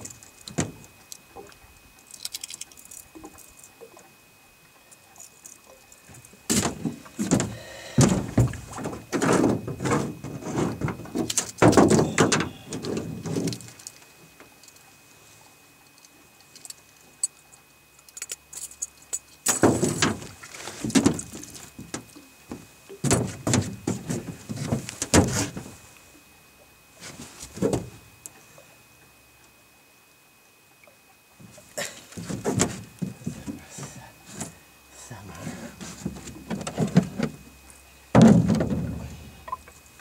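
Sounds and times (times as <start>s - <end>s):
fish thudding in boat: 6.5s - 13.6s, 19.5s - 25.7s, 38.2s - 39.3s
faint high-pitched tone: 11.8s - 13.7s.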